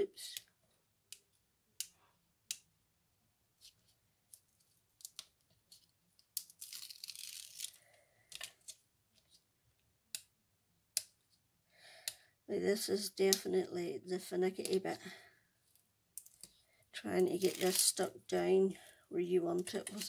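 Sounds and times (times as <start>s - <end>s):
tape backing peeling: 6.4s - 7.8s, 17.3s - 18.0s.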